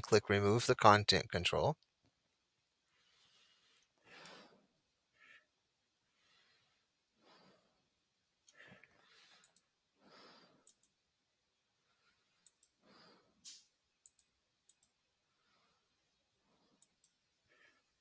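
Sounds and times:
soft breathing: 2.8s - 10.9s, 11.7s - 13.7s, 15.2s - 18.0s
computer mouse clicks: 9.3s - 9.8s, 10.6s - 11.0s, 12.4s - 12.8s, 13.4s - 15.0s, 16.7s - 17.2s.

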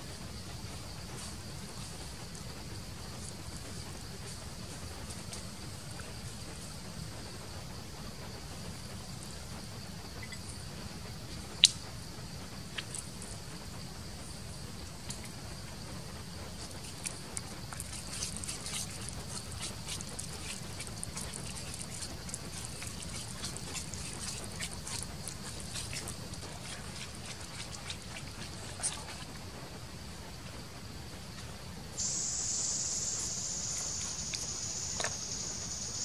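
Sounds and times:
high-pitched background hum: 0.0s - 29.8s, 32.0s - 36.0s
wooden spoon mashing wet paste: 16.6s - 29.4s.

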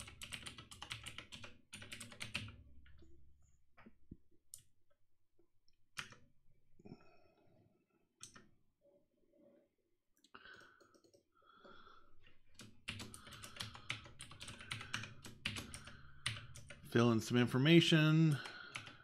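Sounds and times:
computer keyboard keystrokes: 0.0s - 2.6s, 5.9s - 6.2s, 8.2s - 8.5s, 10.4s - 11.3s, 12.5s - 16.9s, 18.3s - 19.0s.

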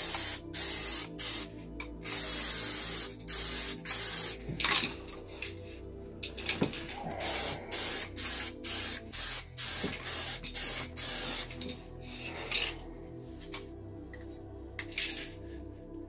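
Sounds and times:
paint spraying hiss: 0.0s - 4.4s, 6.7s - 12.7s.

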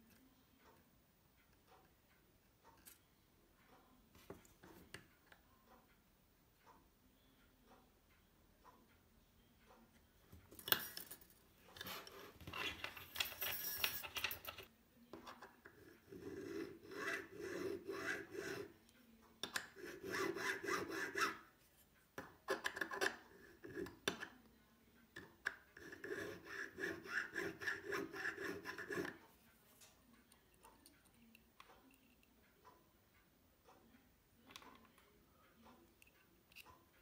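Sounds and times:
hand file scraping metal: 15.7s - 18.8s, 19.6s - 21.5s, 22.6s - 24.2s, 25.6s - 29.2s.

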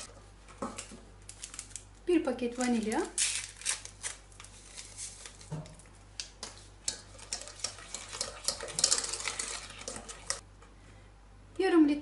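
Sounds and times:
whisk clicking against pot: 6.2s - 10.4s
whisk stirring thick mixture: 6.4s - 10.4s.

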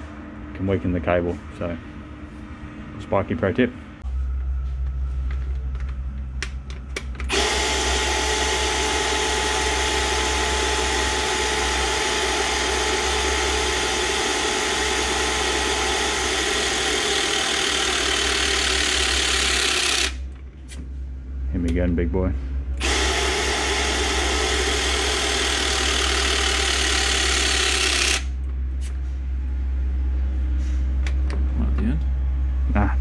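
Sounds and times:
low motor hum: 0.0s - 33.0s
hydraulic crimper motor whine: 5.6s - 20.8s, 22.8s - 29.0s.

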